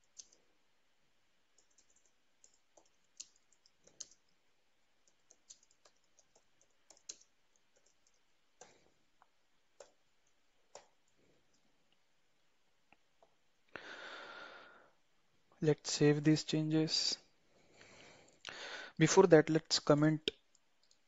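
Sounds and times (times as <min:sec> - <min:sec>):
computer keyboard typing: 0:00.0 - 0:00.4, 0:01.6 - 0:04.4, 0:05.0 - 0:08.8, 0:09.8 - 0:11.6.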